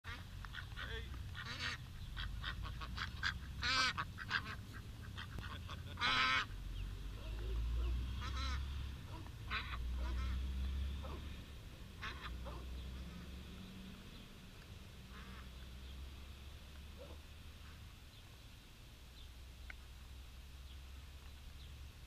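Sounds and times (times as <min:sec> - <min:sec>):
ducklings peeping: 0:00.1 - 0:11.2, 0:12.0 - 0:14.2
ducks quacking: 0:00.1 - 0:13.5, 0:15.0 - 0:15.7.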